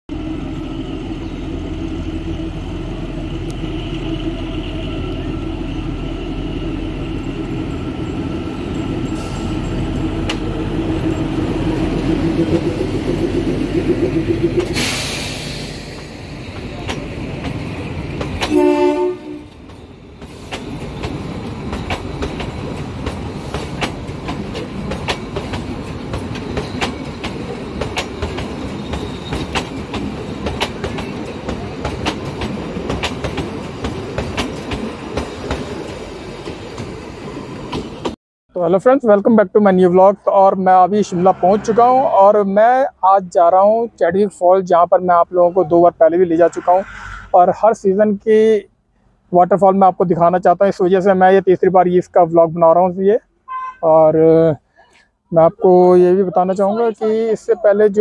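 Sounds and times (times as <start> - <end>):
locomotive engine hum: 0.1 - 38.2
brief hiss: 14.7 - 16.1
train horn blast: 18.4 - 19.6, 53.5 - 53.9
wheels clicking over rail joints: 19.5 - 37.0.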